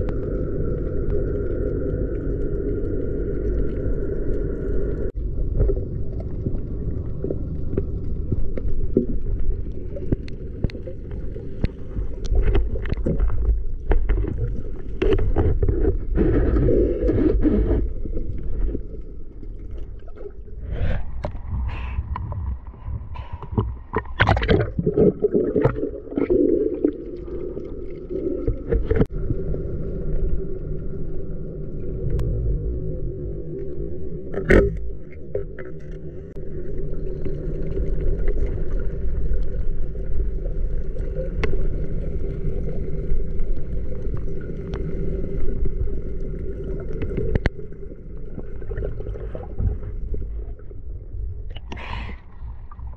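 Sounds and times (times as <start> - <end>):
clicks and crackles: 0.0 - 20.4, 46.1 - 48.9
underwater rumble of moving water: 0.0 - 52.9.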